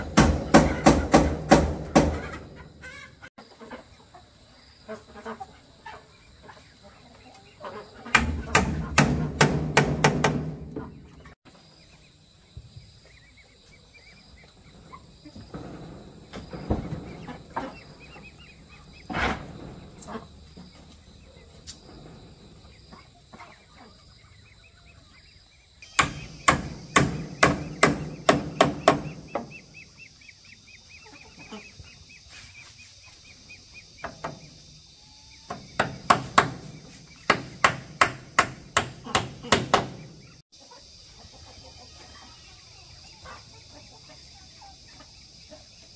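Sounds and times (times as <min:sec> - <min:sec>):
hammer nailing wood: 0:00.0 - 0:02.2, 0:08.2 - 0:10.6, 0:26.0 - 0:29.4, 0:35.8 - 0:40.0
chickens clucking: 0:00.0 - 0:45.9.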